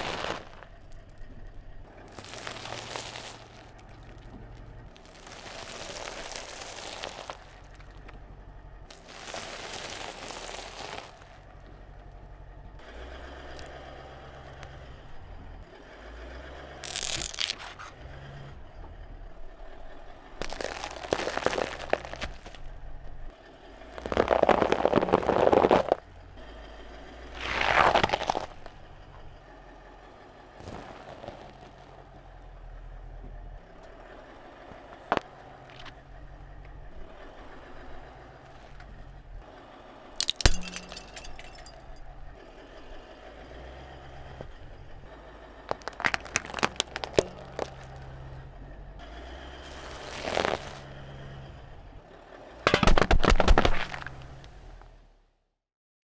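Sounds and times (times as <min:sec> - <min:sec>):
car tyre crushing food: 0:00.0 - 0:11.5, 0:16.8 - 0:18.0, 0:20.2 - 0:26.1, 0:27.2 - 0:28.9, 0:30.6 - 0:32.0, 0:34.8 - 0:36.0, 0:40.2 - 0:42.0, 0:45.6 - 0:48.5, 0:49.6 - 0:50.9, 0:52.6 - 0:54.8
popcorn crackling under tyre: 0:00.0 - 0:11.9, 0:16.8 - 0:17.9, 0:20.2 - 0:22.8, 0:23.7 - 0:26.2, 0:27.2 - 0:28.9, 0:30.6 - 0:32.2, 0:45.4 - 0:48.4, 0:49.6 - 0:50.9, 0:52.6 - 0:54.6
foil-wrapped chocolate eggs crunching: 0:02.1 - 0:04.2, 0:04.9 - 0:07.8, 0:08.9 - 0:11.4, 0:16.9 - 0:17.6, 0:20.4 - 0:22.6, 0:24.0 - 0:26.0, 0:27.5 - 0:28.7, 0:45.7 - 0:47.8, 0:49.8 - 0:50.8.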